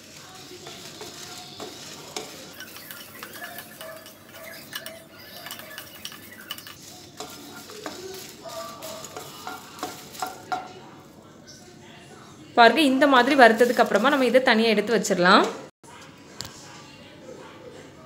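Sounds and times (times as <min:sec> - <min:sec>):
spatula scraping spices in pan: 0:00.0 - 0:10.7, 0:13.2 - 0:14.4
light sizzle: 0:00.0 - 0:11.7, 0:12.8 - 0:14.6
spatula knocking pan: 0:00.6 - 0:10.8.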